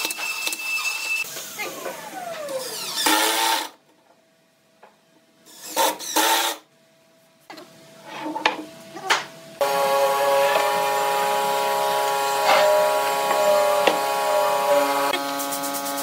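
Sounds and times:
cordless drill drilling into wood: 9.6 - 15.2
power tool running and winding down: 9.6 - 16.0.

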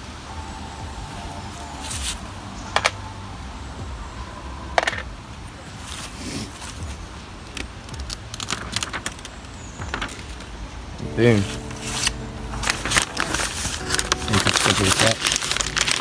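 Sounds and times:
steady low rumble: 6.7 - 16.0
paper rustling: 7.4 - 10.6, 11.5 - 16.0.

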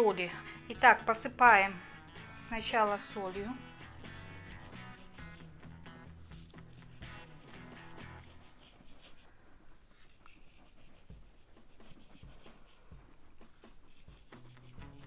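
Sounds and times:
soft background music: 0.0 - 9.3, 10.0 - 15.0.

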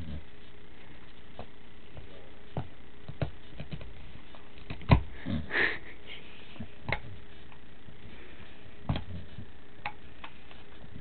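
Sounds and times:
dog sniffing: 6.1 - 11.0.

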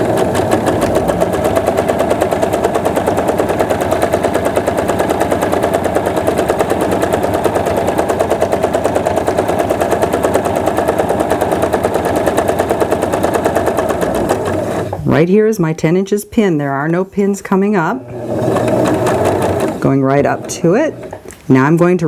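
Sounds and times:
sewing machine stitching: 0.0 - 15.2, 17.8 - 21.8.

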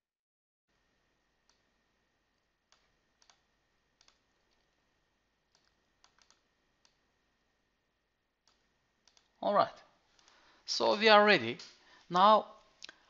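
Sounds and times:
faint mouse clicks: 1.4 - 1.7, 2.3 - 4.8, 5.5 - 7.0, 8.4 - 9.4, 10.1 - 10.4.

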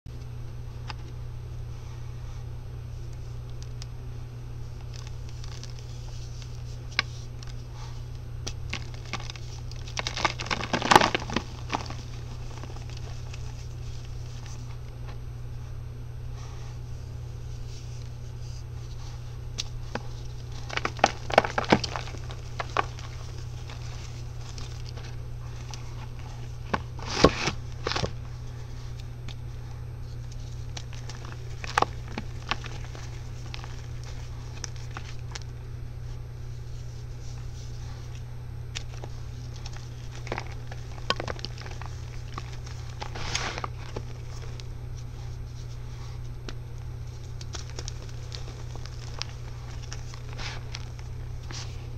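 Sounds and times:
steady low hum: 0.1 - 51.9
powder balls crunching and crumbling: 4.5 - 15.3, 16.4 - 51.9.

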